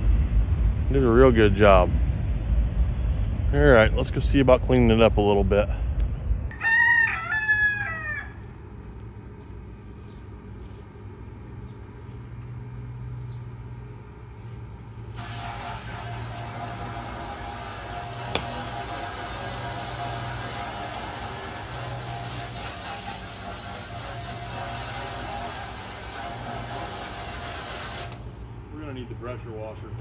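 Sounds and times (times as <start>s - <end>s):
low engine hum: 0.0s - 6.5s, 8.3s - 26.8s
rooster crowing: 6.5s - 8.6s
rushing hiss: 15.1s - 28.2s.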